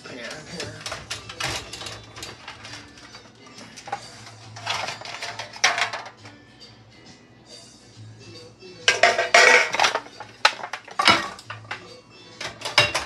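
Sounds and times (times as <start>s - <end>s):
ceramic dishes clinking and scraping: 0.3s - 6.2s, 8.8s - 13.0s.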